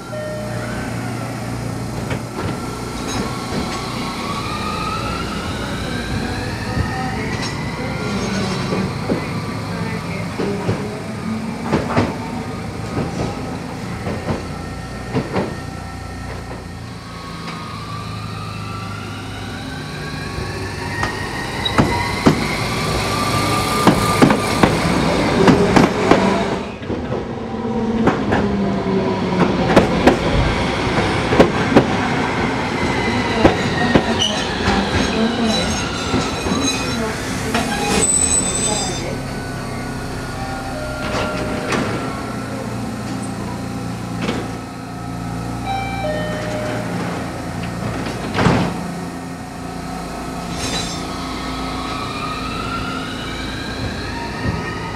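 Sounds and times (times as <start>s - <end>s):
tram wheels squealing: 32.0s - 43.6s, 50.0s - 54.9s.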